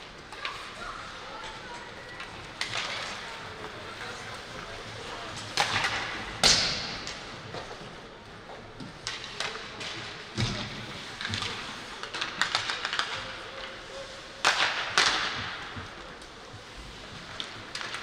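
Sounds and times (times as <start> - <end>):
hockey sticks and puck clacking: 0.0 - 18.0.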